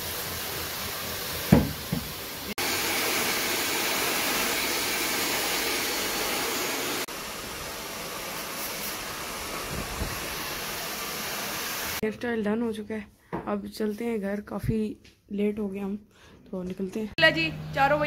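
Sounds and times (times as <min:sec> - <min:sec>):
hair dryer blowing: 0:00.0 - 0:12.0.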